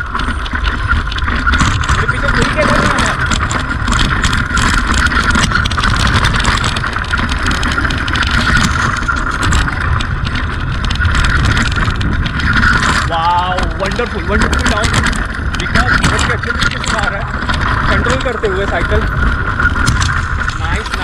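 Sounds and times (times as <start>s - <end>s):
bike rattling and knocking: 0.0s - 21.0s
tyres rumbling over loose stones: 0.0s - 21.0s
wind noise on microphone: 0.0s - 21.0s.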